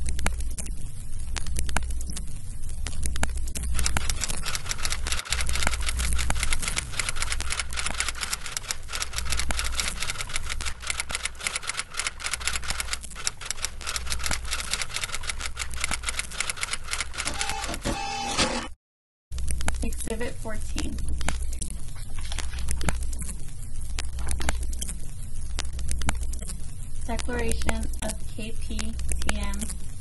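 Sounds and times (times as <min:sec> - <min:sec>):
low hum: 0:00.0 - 0:18.6
rapid mechanical clicking: 0:02.8 - 0:17.8.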